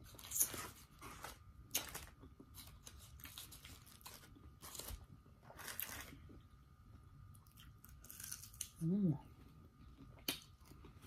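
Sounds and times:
chewing crunchy fried food: 0:00.0 - 0:06.4, 0:07.2 - 0:08.8.

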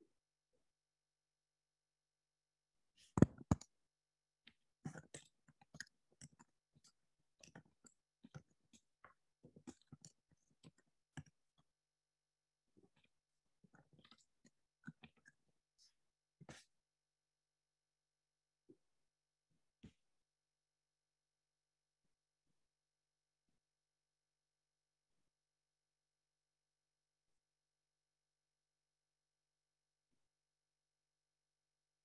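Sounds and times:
small clicks and taps: 0:03.2 - 0:03.7.

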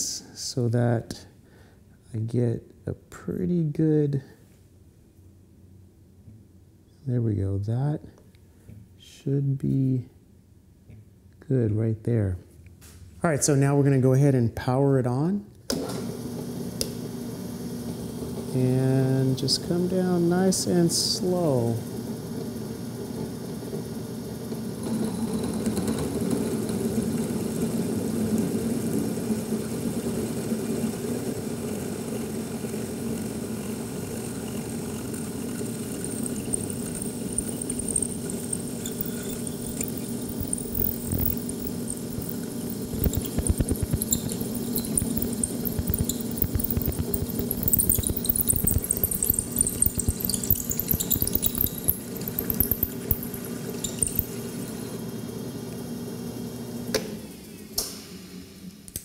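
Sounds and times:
drill press running: 0:21.4 - 0:57.5
high squeal of drill bit cutting: 0:36.0 - 0:55.0
scraping and crackling of metal chips: 0:36.1 - 0:54.4.

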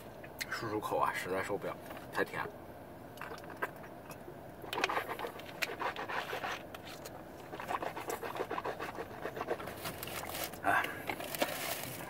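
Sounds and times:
water swishing in mouth: 0:03.2 - 0:10.3
quick breaths: 0:10.6 - 0:11.2.

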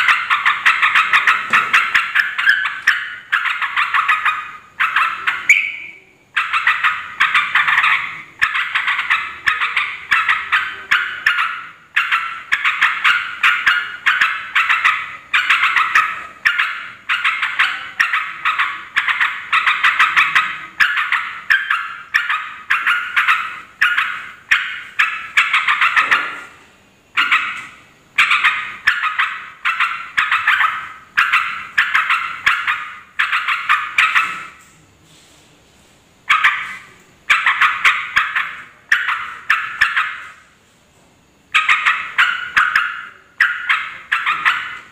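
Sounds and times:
bird calling bubbling phrases: 0:00.0 - 0:26.4.

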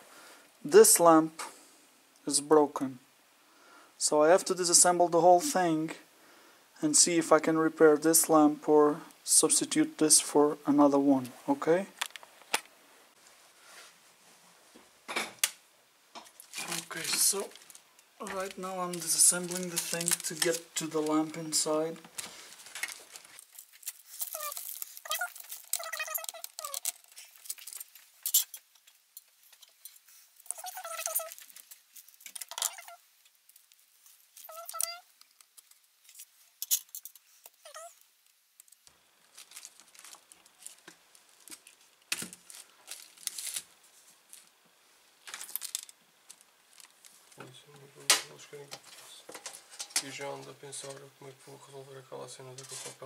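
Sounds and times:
screws clicking and scraping: 0:23.4 - 0:33.0.

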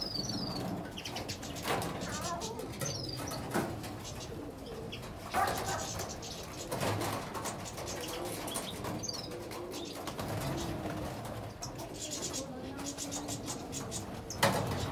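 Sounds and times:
finches chirping and calling: 0:00.0 - 0:14.9
wings fluttering: 0:05.0 - 0:14.9.

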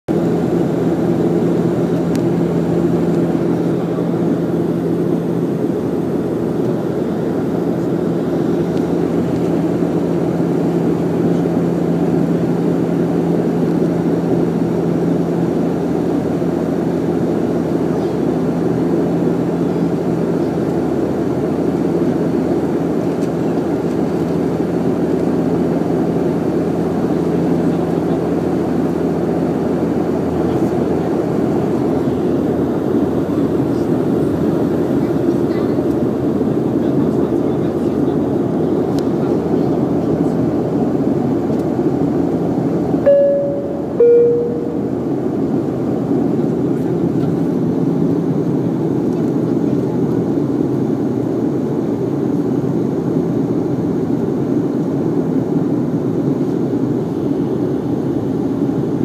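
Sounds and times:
turboprop engine drone: 0:00.1 - 0:59.0
low hum tone: 0:43.0 - 0:45.7.

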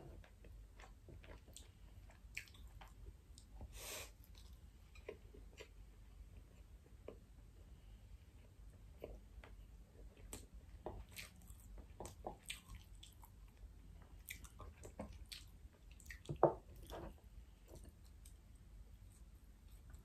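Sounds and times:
close chewing mouth sounds: 0:00.2 - 0:03.5, 0:10.0 - 0:16.9.

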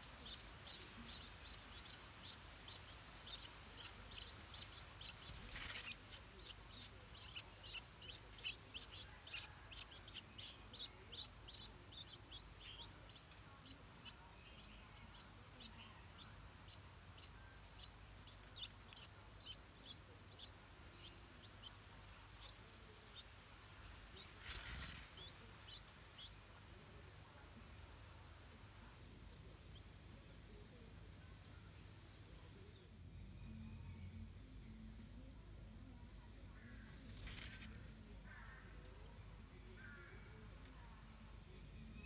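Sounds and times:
nestlings begging cheeps: 0:00.0 - 0:20.6, 0:24.2 - 0:26.4.

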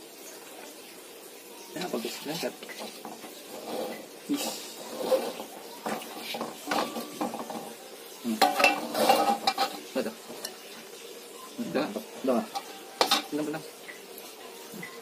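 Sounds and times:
utensils scraping metal wok: 0:01.8 - 0:10.8, 0:11.9 - 0:13.5.

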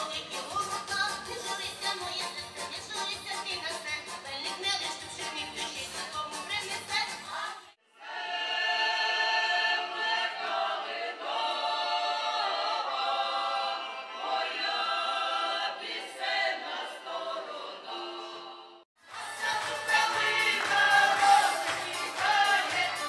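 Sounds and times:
folk choir singing in harmony: 0:07.9 - 0:23.0.

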